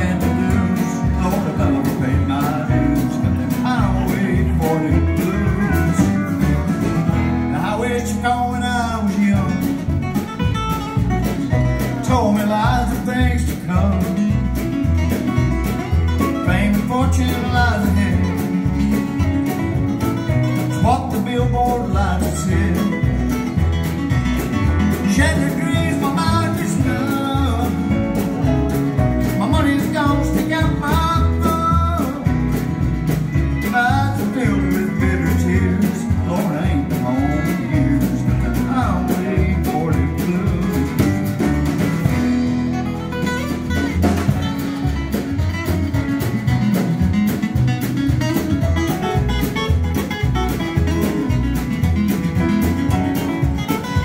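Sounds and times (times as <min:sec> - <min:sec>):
acoustic guitars strumming: 0:00.0 - 0:54.0
upright bass: 0:00.0 - 0:54.0
fiddle playing sliding melody: 0:42.2 - 0:46.7.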